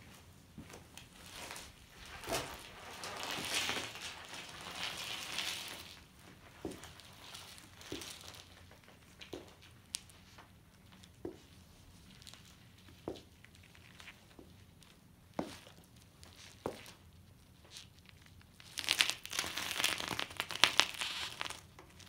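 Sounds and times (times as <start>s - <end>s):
soft footsteps: 0.0s - 4.0s, 6.3s - 10.4s, 11.0s - 12.0s, 12.9s - 13.4s, 15.4s - 17.0s.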